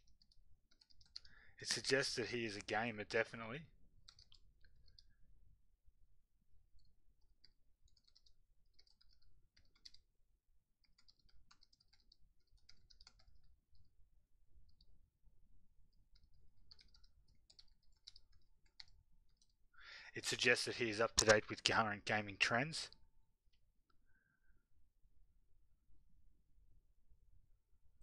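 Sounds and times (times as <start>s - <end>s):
faint keyboard typing: 0.0s - 5.2s, 6.6s - 15.1s, 15.8s - 19.7s, 20.4s - 21.8s.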